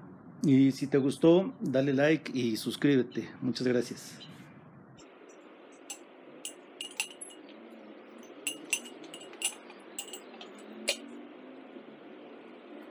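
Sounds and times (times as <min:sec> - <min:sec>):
glass bottle clinking against wood: 0:06.8 - 0:07.5, 0:08.4 - 0:11.0.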